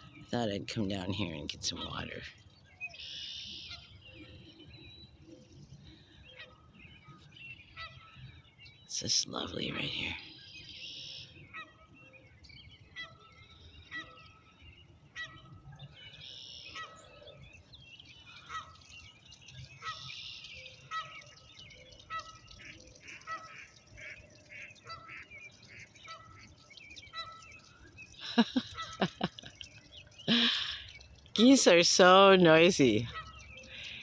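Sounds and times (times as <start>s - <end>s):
geese honking: 22.0s - 27.6s, 28.2s - 29.5s, 31.4s - 34.0s.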